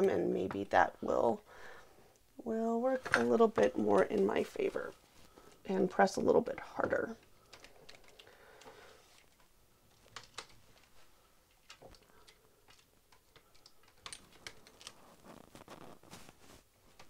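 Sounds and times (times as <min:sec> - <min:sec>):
plastic sheet rustling: 0:14.2 - 0:17.0.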